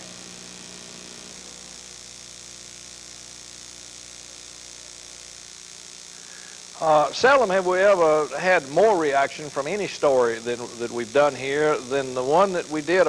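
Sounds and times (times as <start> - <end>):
electrical hum: 0.0 - 13.0
tape hiss: 0.0 - 13.0.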